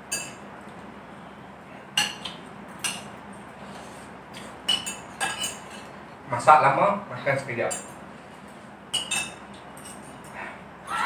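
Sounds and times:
spoons clinking against ceramic bowls: 0:00.1 - 0:00.4, 0:04.4 - 0:06.0, 0:08.9 - 0:10.3.

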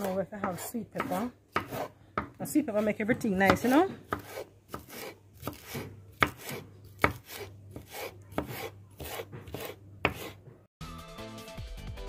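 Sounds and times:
knife chopping pepper: 0:00.0 - 0:10.5
music: 0:10.8 - 0:12.0.

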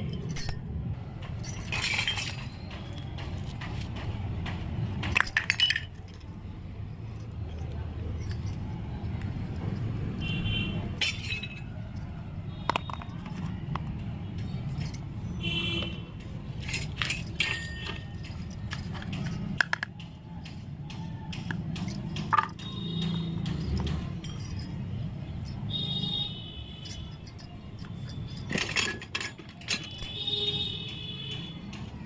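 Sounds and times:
small toy pieces clicking on concrete: 0:11.0 - 0:14.0, 0:16.8 - 0:24.9.

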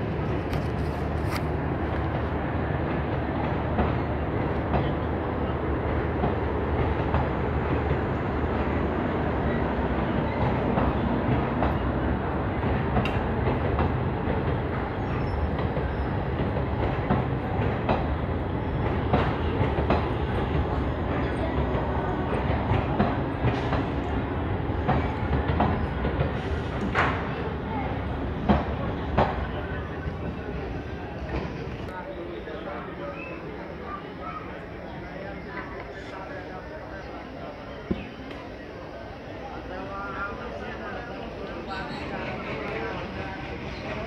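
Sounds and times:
train wheels rumbling on rails: 0:00.0 - 0:44.0.

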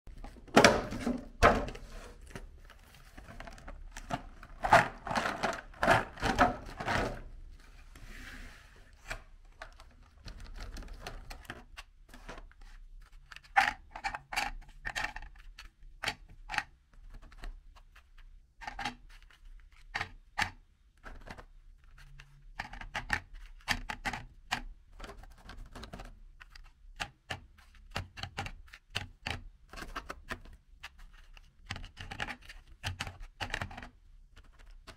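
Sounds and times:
biscuits clicking on plastic plate: 0:18.2 - 0:34.9.

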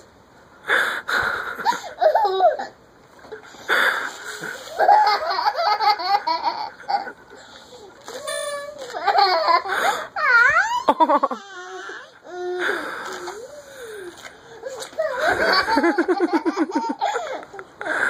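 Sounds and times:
baby laughing: 0:01.6 - 0:02.8, 0:04.6 - 0:07.2, 0:08.8 - 0:11.7, 0:14.6 - 0:17.7.

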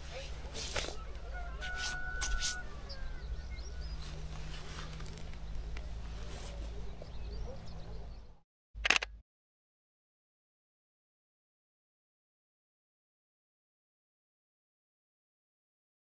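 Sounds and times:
rustles of grass and clothing: 0:00.0 - 0:07.6.

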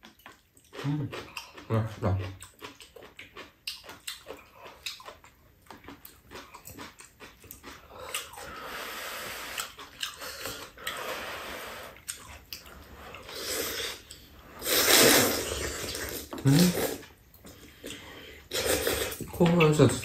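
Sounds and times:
chewing smacks and clicks: 0:00.0 - 0:08.5, 0:09.5 - 0:11.0, 0:12.0 - 0:13.3
slurping noodles: 0:08.2 - 0:12.2, 0:12.9 - 0:17.1, 0:17.9 - 0:19.2.

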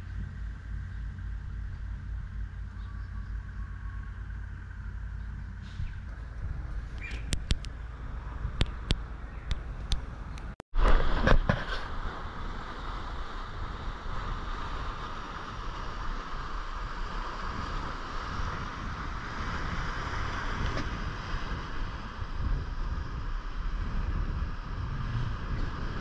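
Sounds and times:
wind rumbling on microphone: 0:00.0 - 0:26.0
sea surf breaking on rocks: 0:10.8 - 0:26.0.

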